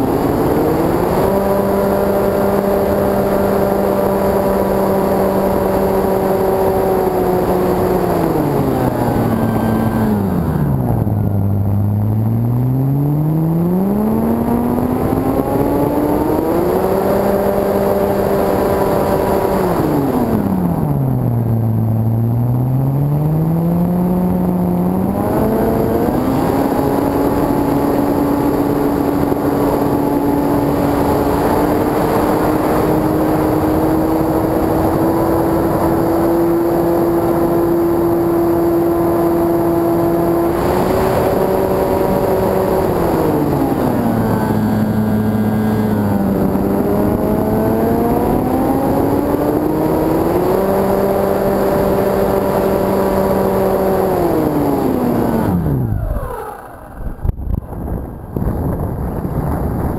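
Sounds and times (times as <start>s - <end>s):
electric motor and propeller whining: 0.0s - 59.9s
wind rushing over camera: 0.0s - 59.9s.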